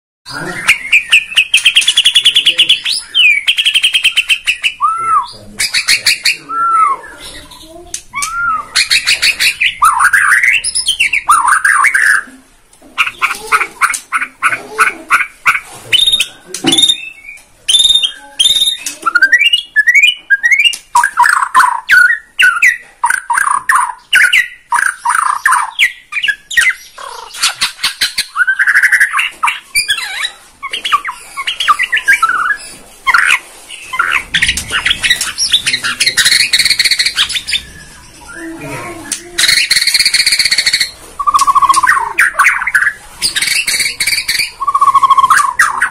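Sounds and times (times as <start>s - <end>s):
songbird singing whistles and trills: 0.3s - 12.3s, 15.9s - 27.0s, 27.7s - 45.9s.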